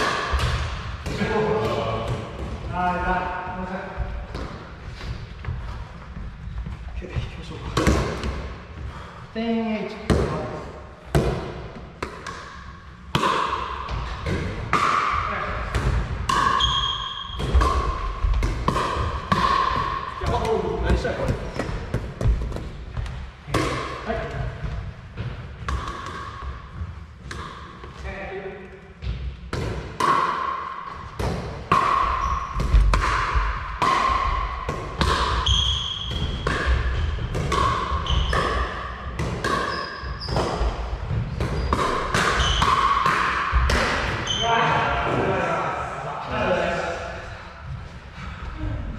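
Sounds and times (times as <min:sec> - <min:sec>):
ball bouncing on wooden floor: 0:13.1 - 0:28.0, 0:30.9 - 0:44.4
shoes squeaking on floor: 0:16.5 - 0:18.1, 0:32.1 - 0:32.9, 0:35.4 - 0:36.4, 0:37.9 - 0:38.7, 0:39.6 - 0:42.7, 0:44.2 - 0:44.6
paddles hitting plastic ball: 0:17.4 - 0:24.0.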